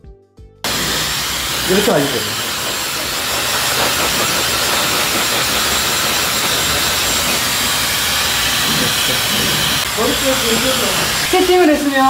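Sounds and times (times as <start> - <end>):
hair dryer running: 0.6 - 12.0.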